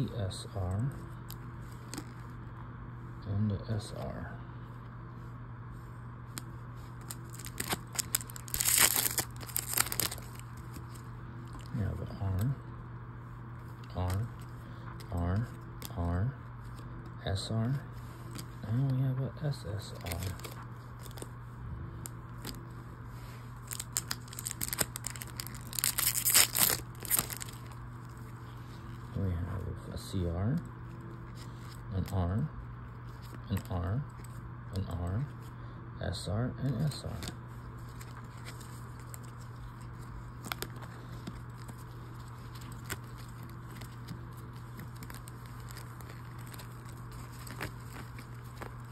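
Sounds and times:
steady low hum: 0.0s - 48.9s
trading cards clicking and rustling: 6.3s - 12.5s, 19.8s - 21.3s, 23.6s - 27.8s
wrapper crinkling and tearing: 7.0s - 11.8s, 19.9s - 21.3s, 23.6s - 28.3s, 37.2s - 48.9s.

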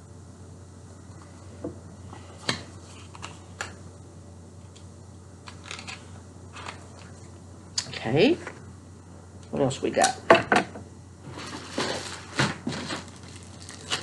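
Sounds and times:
low steady hum: 0.0s - 14.0s
packaging rustling: 5.4s - 7.3s, 11.3s - 14.0s.

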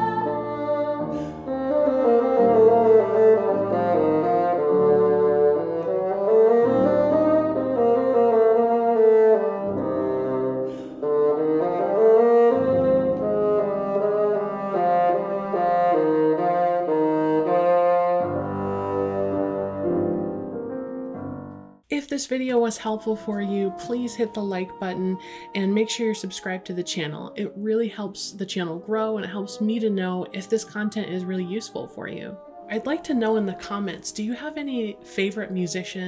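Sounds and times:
bassoon solo: 0.0s - 21.4s, 22.8s - 27.5s
piano accompaniment: 0.0s - 36.0s.

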